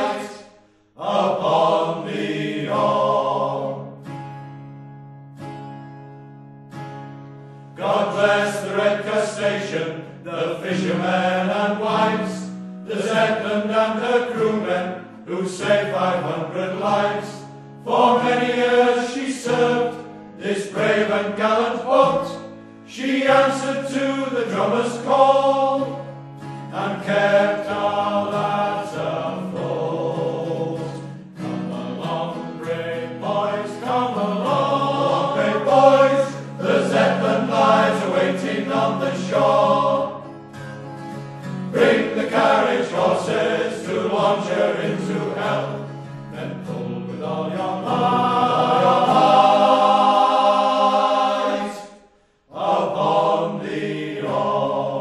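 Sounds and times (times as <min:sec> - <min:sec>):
male choir singing: 0:00.0 - 0:04.1, 0:07.7 - 0:40.3, 0:41.7 - 0:55.0
acoustic guitar: 0:00.0 - 0:55.0.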